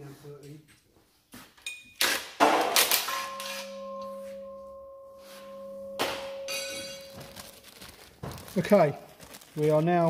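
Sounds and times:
struck metal ringing: 2.4 - 7.6
metal tools clanking: 5.4 - 7.3.

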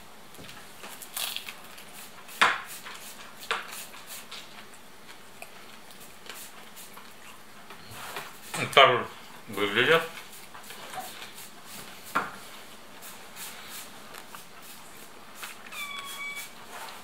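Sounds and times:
crisp pastry crackling: 0.8 - 2.2
chewing: 4.3 - 7.9.

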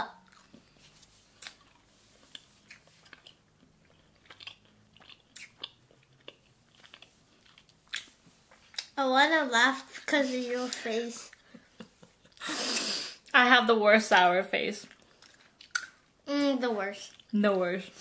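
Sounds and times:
people chewing gummy candy: 0.0 - 9.0, 14.8 - 16.0, 17.0 - 17.4.

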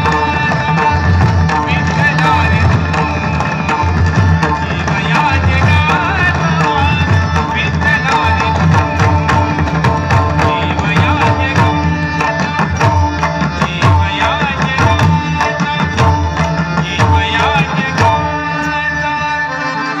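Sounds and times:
barrel drums played by hand: 0.0 - 18.4
devotional singing: 4.6 - 9.6, 10.3 - 19.8.

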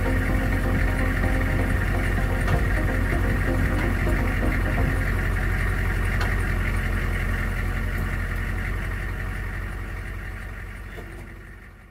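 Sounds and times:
diesel engine idling: 0.0 - 11.9.

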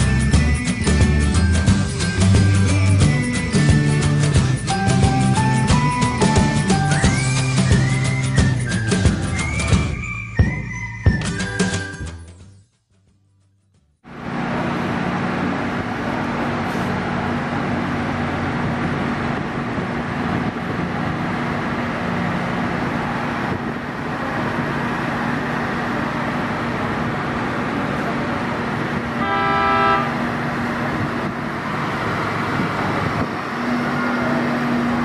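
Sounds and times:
heavy machinery humming: 14.1 - 35.0
short horn toot: 29.2 - 30.2.

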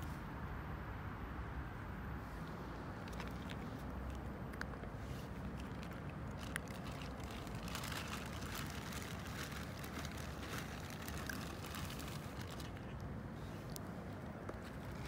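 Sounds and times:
low background rumble: 1.2 - 15.0
cats crunching dry kibble: 3.0 - 15.0.

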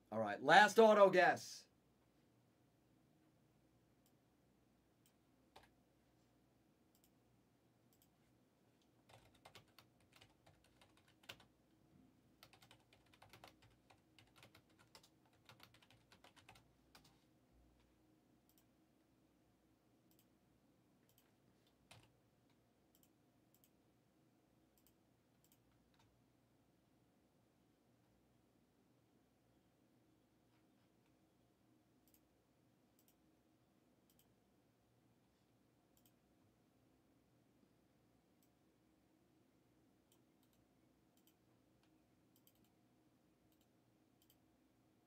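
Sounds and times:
typing on keyboard: 5.0 - 5.8, 9.0 - 11.5, 12.4 - 17.2, 21.0 - 22.2, 42.4 - 42.7.

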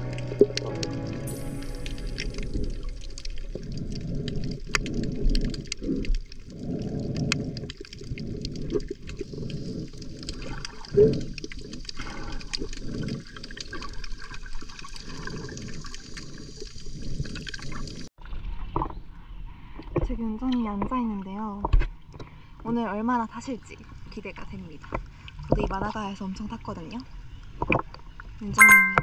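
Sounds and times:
muffled water sloshing underwater: 0.0 - 20.0
small clicks and crackles: 1.8 - 18.1.

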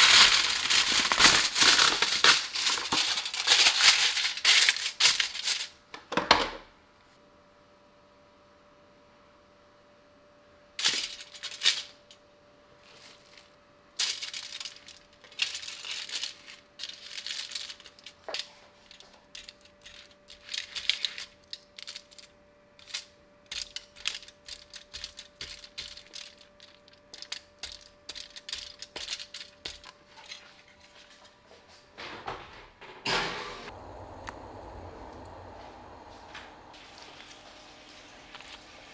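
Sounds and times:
aluminium foil crinkling: 0.0 - 5.8, 10.8 - 12.1, 12.8 - 31.3
faint steady hum: 0.0 - 38.9.

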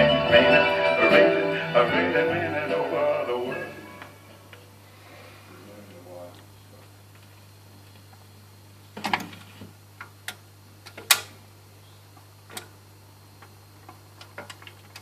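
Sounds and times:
steady low hum: 0.0 - 15.0
record changer clicks and clunks: 9.0 - 11.4, 12.2 - 12.8, 13.4 - 15.0.

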